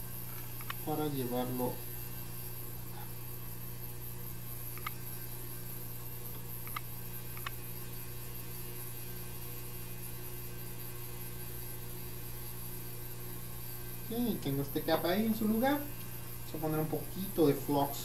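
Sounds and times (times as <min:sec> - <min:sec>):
electrical mains hum: 0:00.0 - 0:18.0
faint light clicks: 0:06.3 - 0:07.6.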